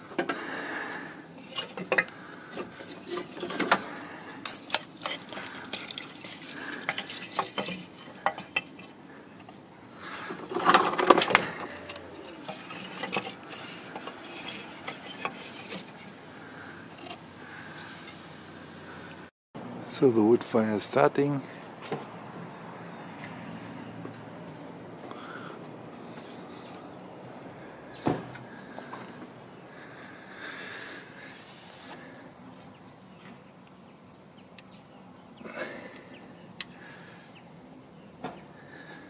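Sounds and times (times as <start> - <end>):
wood clattering in metal firebox: 0.0 - 9.6, 10.2 - 17.2.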